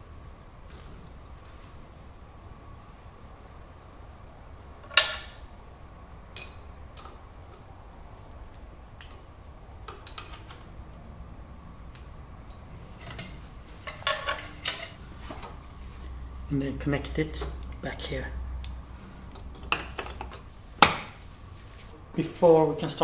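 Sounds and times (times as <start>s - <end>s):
metal clanks and clicks: 9.9s - 10.7s, 13.0s - 15.6s.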